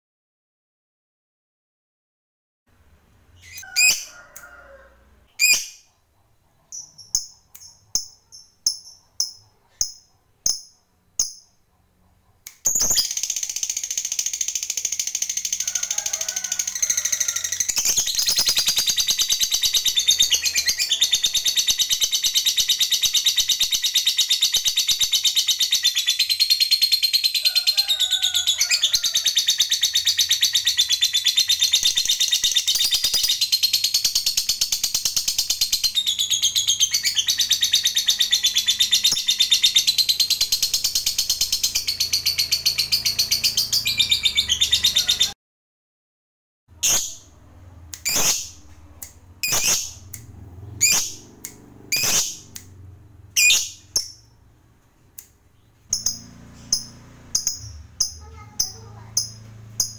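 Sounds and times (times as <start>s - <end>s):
lovebird chirping: 3.3s - 4.2s, 5.3s - 15.7s, 16.9s - 27.4s, 29.4s - 45.4s, 46.8s - 52.6s, 53.4s - 54.4s, 55.5s - 59.9s
lovebird rapid chatter: 12.6s - 28.0s, 28.6s - 45.4s, 48.0s - 48.6s, 49.4s - 50.2s, 50.8s - 52.6s, 53.4s - 54.2s.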